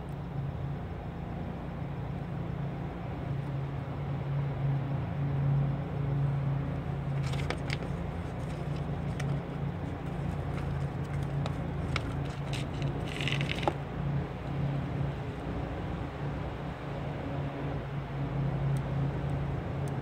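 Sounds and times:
low vehicle hum: 0.0s - 20.0s
decal crackling as peeled: 7.1s - 13.8s.

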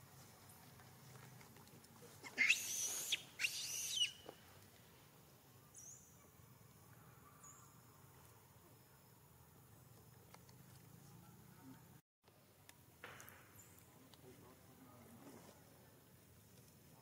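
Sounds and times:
shrill harsh animal calls: 2.3s - 4.2s.

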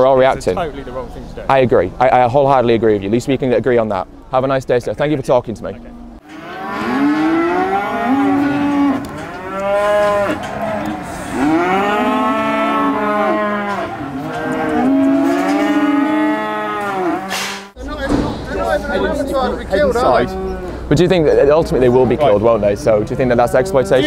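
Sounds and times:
cattle mooing: 6.1s - 17.5s, 19.0s - 22.3s, 23.4s - 24.0s.

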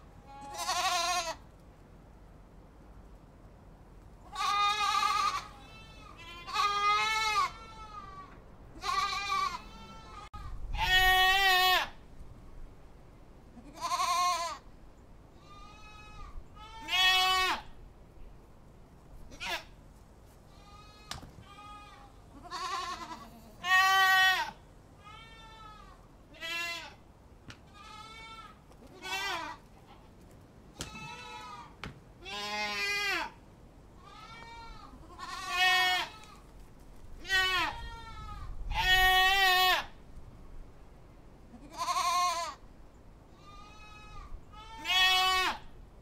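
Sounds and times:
goats bleating: 0.2s - 1.4s, 4.3s - 12.0s, 13.6s - 14.6s, 15.4s - 17.7s, 20.5s - 27.0s, 27.7s - 30.0s, 30.8s - 33.4s, 34.0s - 36.4s, 37.2s - 39.9s, 41.5s - 42.6s, 43.4s - 45.6s.

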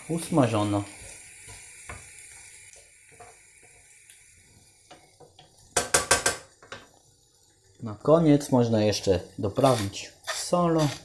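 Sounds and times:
eggs sizzling in a frying pan: 0.0s - 11.0s
spatula stirring and scraping: 0.2s - 3.8s, 9.4s - 11.0s
spatula knocking on pan: 5.3s - 6.9s.

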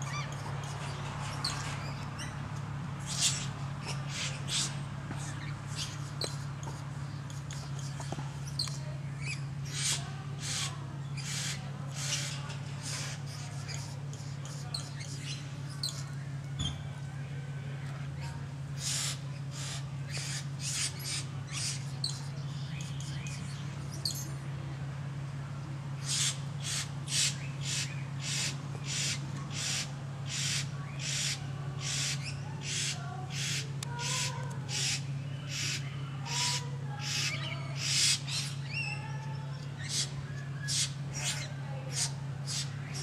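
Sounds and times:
steady low hum: 0.0s - 43.0s
bird harsh hissing rasps: 9.6s - 15.0s, 18.8s - 22.0s, 26.0s - 38.6s, 39.8s - 43.0s.

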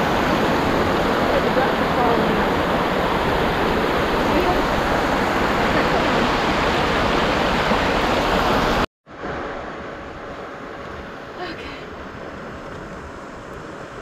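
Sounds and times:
creek water rushing over rocks: 0.0s - 9.5s.

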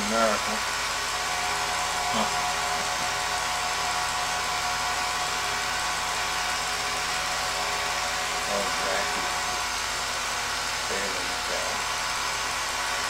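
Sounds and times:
film projector whirring: 0.0s - 13.0s.

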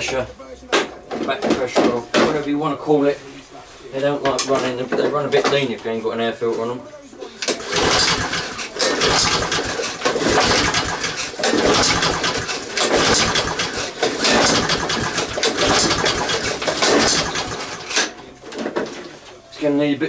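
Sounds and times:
lawn mower engine pull-starting: 7.4s - 18.1s.

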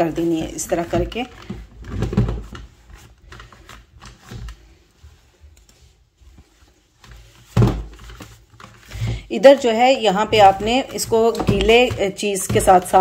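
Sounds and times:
cloth rubbing on plastic: 2.4s - 13.0s
plastic handling knocks: 7.5s - 8.2s, 10.3s - 13.0s.

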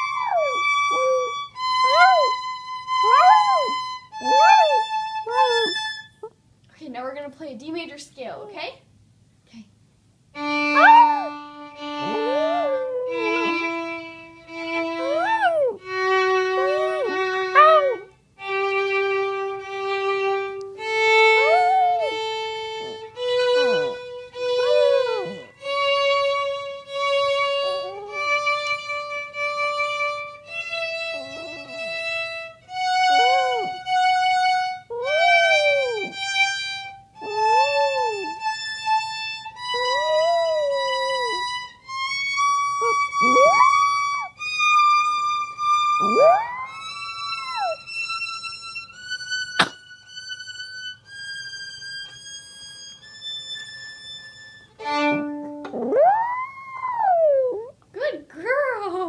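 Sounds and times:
dog howling: 0.0s - 2.4s, 3.0s - 5.8s, 10.7s - 13.9s, 14.9s - 18.1s, 21.2s - 22.3s, 24.5s - 25.5s, 27.5s - 28.6s, 30.8s - 32.2s, 32.8s - 33.8s, 34.9s - 36.2s, 37.2s - 38.5s, 39.6s - 41.6s, 42.8s - 44.2s, 46.0s - 47.8s, 55.7s - 57.7s
violin playing a slow scale: 0.0s - 6.2s, 10.3s - 55.9s.

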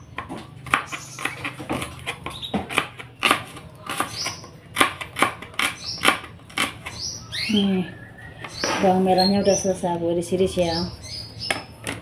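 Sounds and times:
knife slicing shallots: 0.6s - 7.0s.

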